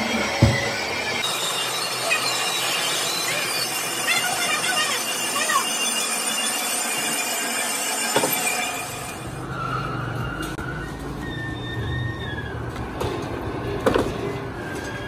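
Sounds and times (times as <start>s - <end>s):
high-pitched machine whine: 0.0s - 11.5s.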